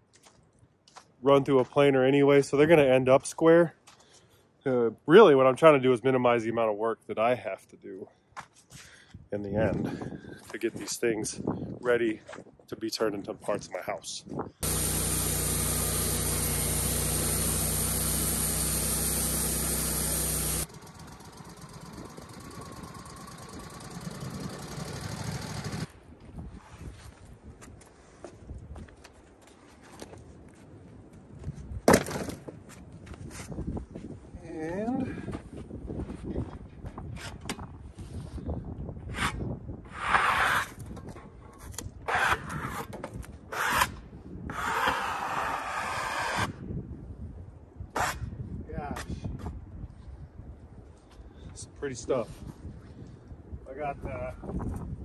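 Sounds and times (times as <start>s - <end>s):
sawmill engine running: 14.6s - 25.9s.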